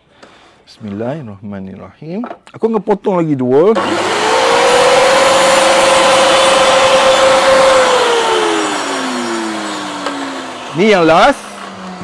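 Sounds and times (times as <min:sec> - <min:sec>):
table saw whining: 0:03.8 - 0:12.0.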